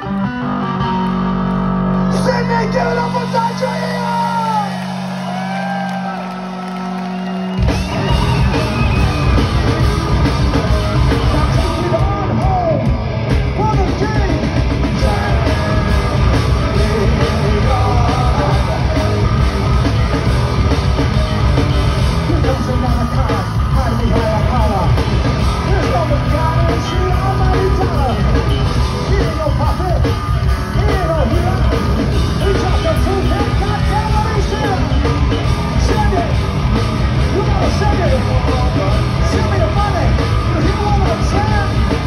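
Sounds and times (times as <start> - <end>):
bass: 0.0 - 42.0
distorted guitars: 0.0 - 42.0
drums: 0.0 - 42.0
singer yelling: 2.1 - 6.9, 11.1 - 12.9, 35.7 - 36.4.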